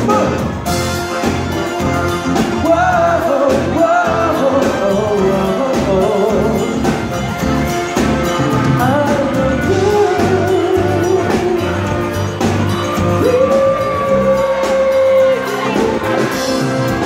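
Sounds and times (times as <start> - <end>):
live pop band playing: 0.0 - 17.0
man singing into a microphone: 2.4 - 7.0, 8.6 - 12.0, 13.1 - 16.6.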